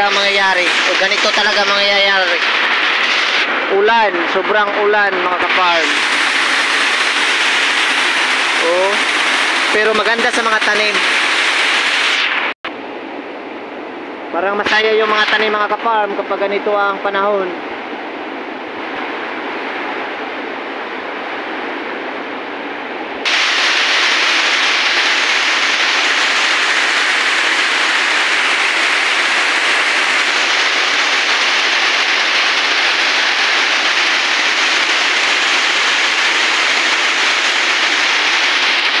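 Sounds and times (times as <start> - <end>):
heavy rain: 0.0 - 12.6, 23.2 - 39.0.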